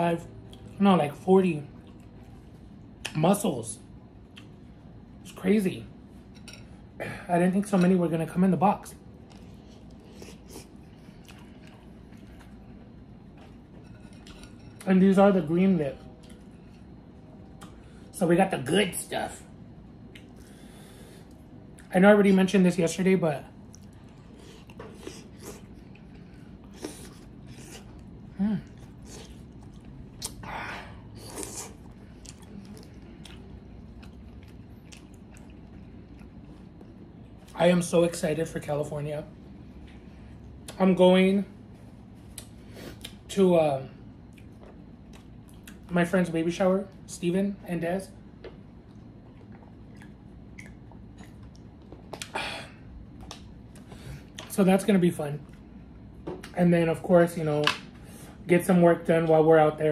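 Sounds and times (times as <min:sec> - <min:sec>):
wet chewing and smacking: 0:23.6 - 0:30.4, 0:31.2 - 0:37.6, 0:48.4 - 0:52.3
slurping: 0:31.1 - 0:33.4.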